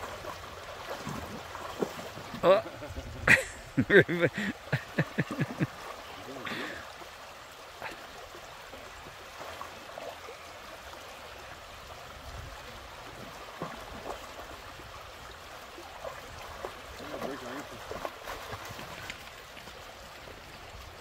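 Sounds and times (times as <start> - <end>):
river flowing over stones: 0.0 - 21.0
dog splashing in water: 16.0 - 19.3.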